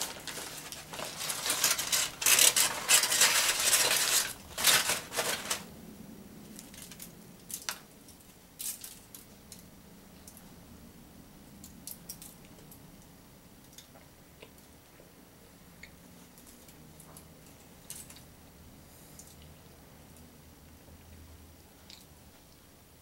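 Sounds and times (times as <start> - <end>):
paper wrapper crinkling: 0.0 - 5.7.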